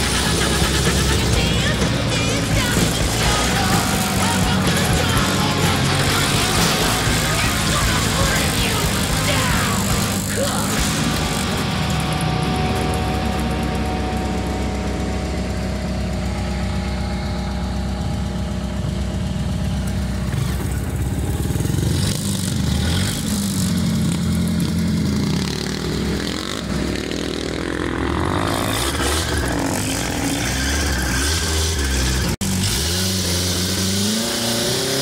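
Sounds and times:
buggy engine running: 0.0s - 35.0s.

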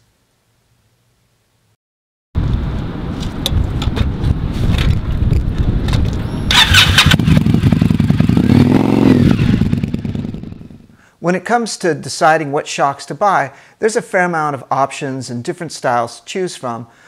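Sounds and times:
motorcycle engine rumbling and revving: 2.4s - 11.0s.

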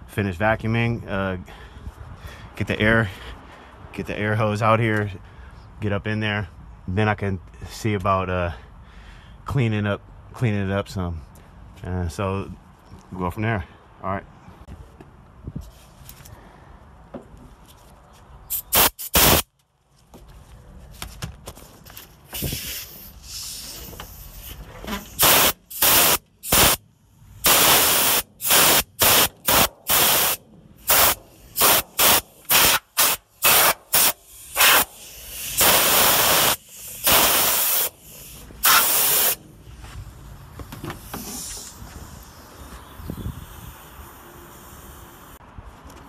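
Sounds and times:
compressed air blow gun blasts: 18.5s - 19.5s, 22.3s - 26.8s, 27.4s - 39.4s, 41.0s - 42.6s.

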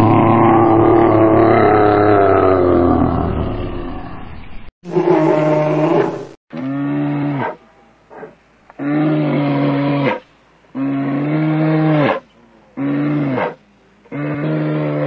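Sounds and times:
bear roaring: 0.0s - 4.1s, 4.9s - 12.2s, 12.8s - 15.0s.

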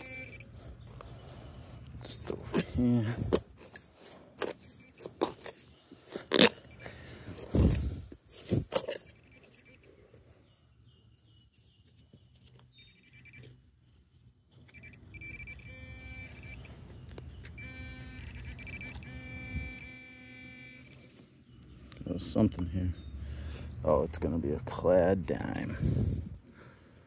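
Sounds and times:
metal detector pulsing beep: 0.0s - 1.0s, 4.4s - 5.7s, 6.4s - 8.0s, 8.8s - 10.2s, 12.8s - 13.6s, 14.5s - 21.2s.

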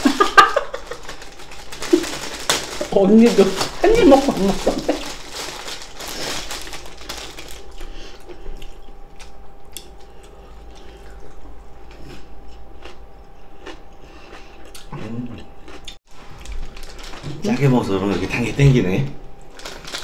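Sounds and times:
crinkling rustle: 0.6s - 7.9s, 16.1s - 18.6s, 19.5s - 20.0s
chewing with mouth clicks: 7.6s - 16.7s.

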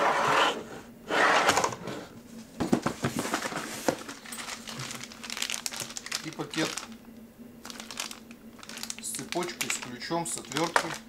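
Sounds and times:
cardboard rustling and scraping: 0.0s - 6.9s.

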